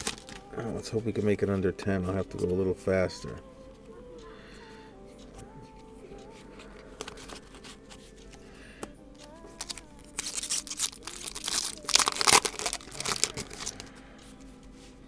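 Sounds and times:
wrapper crinkling: 0.0 - 0.6, 9.5 - 13.9.

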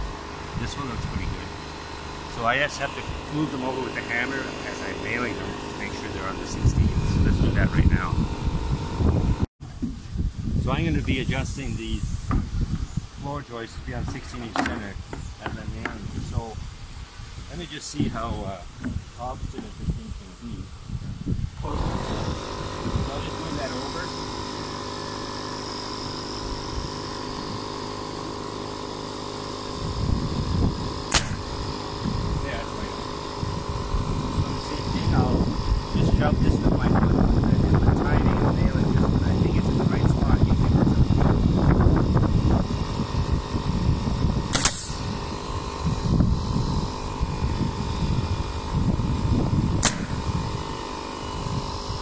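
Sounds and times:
air compressor humming: 0.0 - 52.0
nail gun air hiss: 30.9 - 32.2, 44.4 - 45.5, 49.8 - 52.0
nail gun shots: 31.0 - 32.0, 44.4 - 45.1, 49.8 - 50.7.

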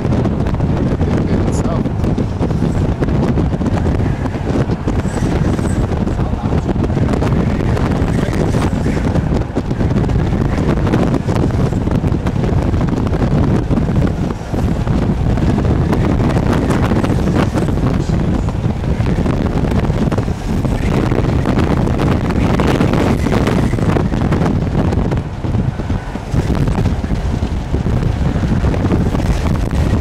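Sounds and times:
gusty wind buffeting microphone: 0.0 - 30.0.

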